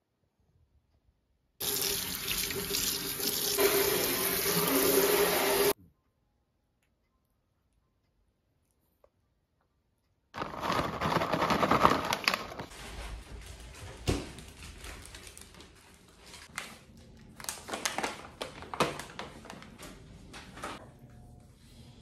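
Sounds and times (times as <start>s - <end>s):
packaging crinkling: 10.4s - 13.0s, 14.4s - 20.0s.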